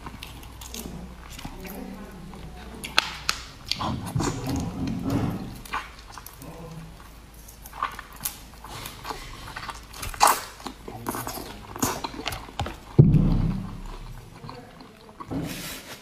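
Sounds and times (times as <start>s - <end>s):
shrimp being bitten and chewed: 0.0s - 15.6s
deep thump: 13.0s - 13.9s.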